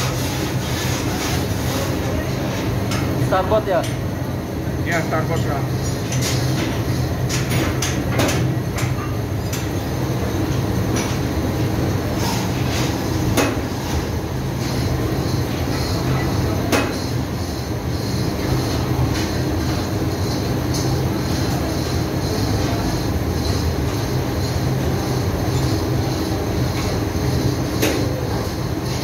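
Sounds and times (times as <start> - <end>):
engine room machinery noise: 0.0 - 29.0.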